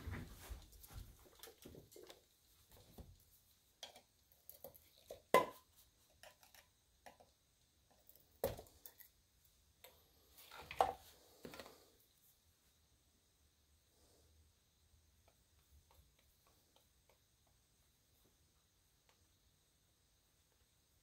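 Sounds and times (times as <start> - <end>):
scraping shuffle: 0.0 - 1.8.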